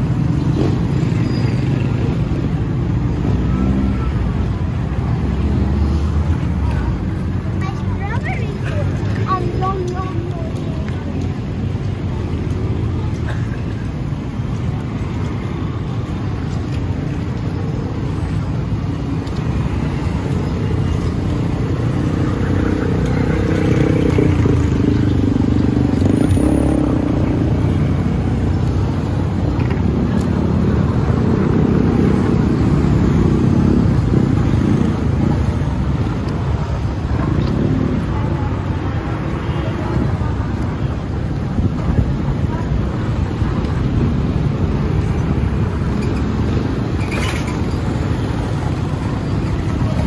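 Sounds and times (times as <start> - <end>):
cars and motorcycles passing: 0.0 - 50.0.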